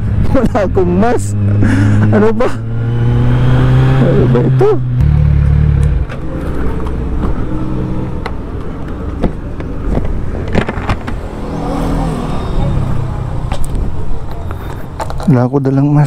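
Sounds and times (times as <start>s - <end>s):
motorcycle engine running low: 0.0s - 6.6s.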